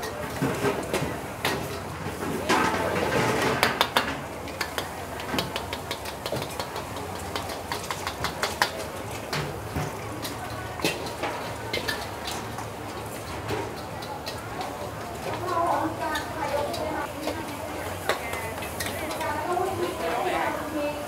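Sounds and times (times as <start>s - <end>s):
gas burners roaring: 0.0s - 21.0s
metal spatulas scraping woks: 10.2s - 20.5s.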